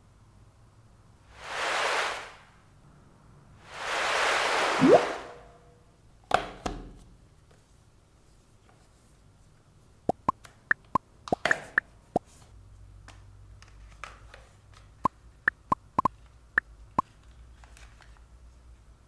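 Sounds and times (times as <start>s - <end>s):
cardboard sliding: 1.3s - 2.4s
sharp taps and clicks: 10.1s - 11.8s, 15.5s - 16.1s.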